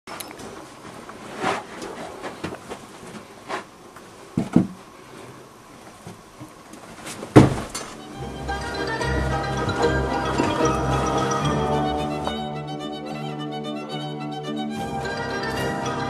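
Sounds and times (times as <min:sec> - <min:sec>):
knocks and thumps: 0:04.4 - 0:04.8, 0:07.3 - 0:07.9
music: 0:08.0 - 0:16.0.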